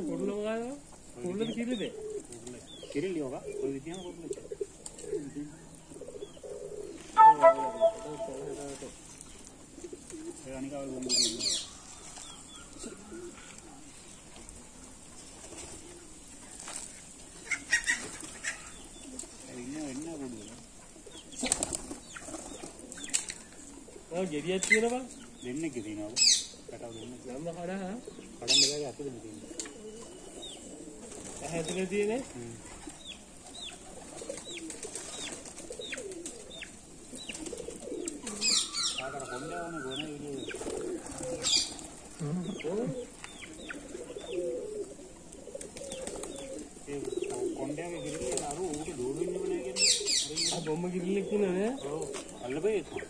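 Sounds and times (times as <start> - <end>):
pigeons cooing: 0.0 - 53.0
high falling peep: 7.2 - 8.6
wings flapping: 15.2 - 23.8, 24.4 - 25.1, 30.9 - 38.9, 40.2 - 42.2, 45.3 - 49.2.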